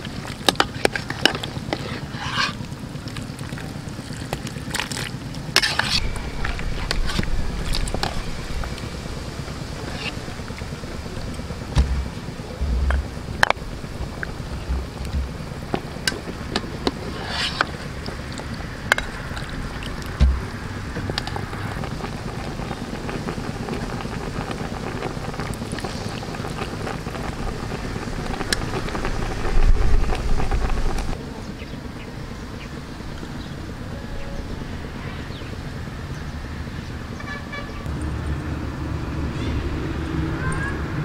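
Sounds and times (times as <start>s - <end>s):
wind rumble on microphone: 5.8s - 31.2s.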